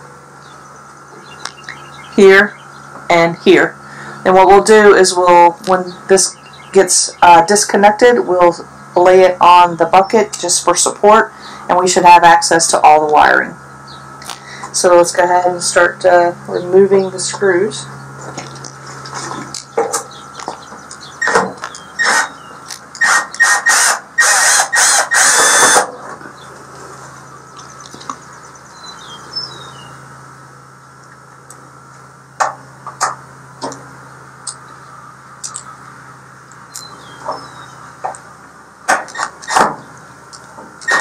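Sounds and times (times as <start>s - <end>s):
birds chirping faintly: 0.1s - 11.7s, 13.6s - 23.4s, 25.9s - 38.5s
drill clicks: 20.5s - 25.9s.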